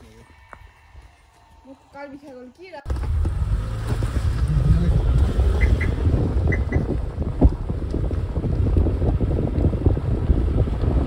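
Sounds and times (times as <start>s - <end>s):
road and engine rumble: 1.4s - 11.0s
wind buffeting microphone: 3.1s - 11.0s.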